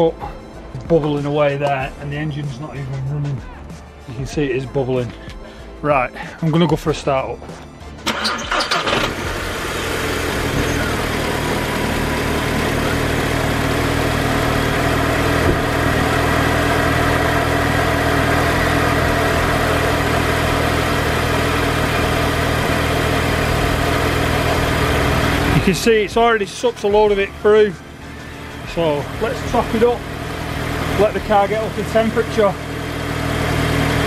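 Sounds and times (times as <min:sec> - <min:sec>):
car engine starting and idling: 0:07.9 - 0:34.0.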